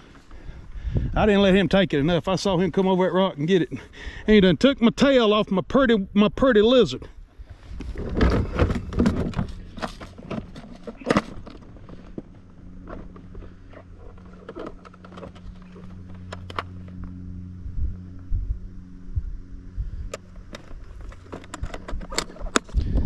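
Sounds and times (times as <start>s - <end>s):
low steady hum: 0.0s - 23.0s
fishing gear clicks and knocks: 7.8s - 17.0s, 20.2s - 22.9s.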